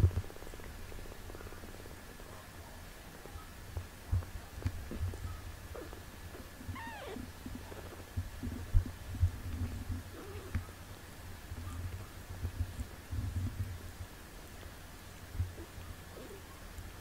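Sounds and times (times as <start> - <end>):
cat purring: 5.7 - 11.1, 14.6 - 16.6
faint kitten mew: 6.7 - 7.3.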